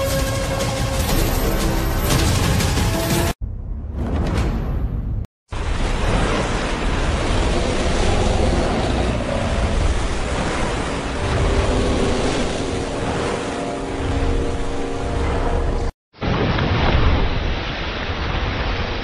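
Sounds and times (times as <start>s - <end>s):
crashing churning water: 5.5s - 19.0s.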